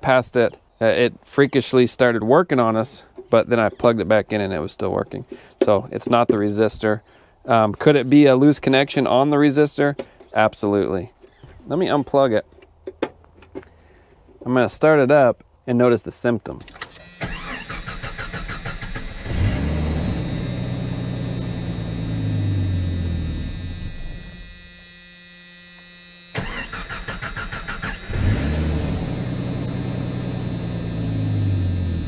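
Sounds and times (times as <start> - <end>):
engine cranking on starter: 16.8 - 24.0, 26.4 - 32.0
car engine running: 18.5 - 24.3, 26.9 - 32.0.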